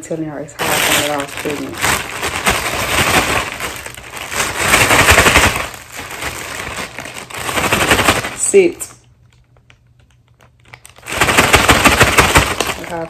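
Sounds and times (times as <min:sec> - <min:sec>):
crab legs cracking and crunching: 0:10.0 - 0:13.0.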